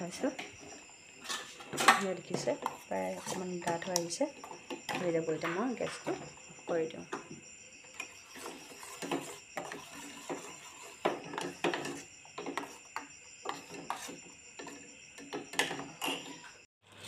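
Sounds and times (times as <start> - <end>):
metal spoon scraping steel pot: 1.2 - 4.0, 8.0 - 12.8, 15.6 - 16.6.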